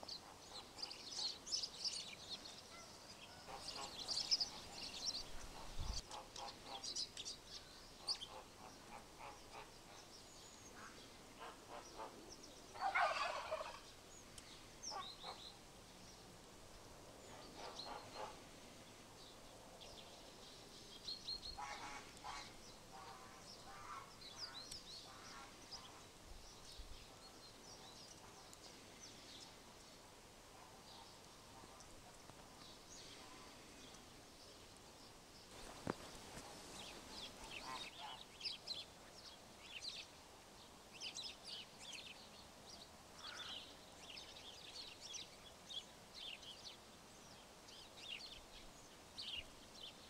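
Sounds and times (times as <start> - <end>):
birds chirping: 0.0 - 16.3, 17.2 - 40.2
harsh rattling bird call: 43.2 - 43.5.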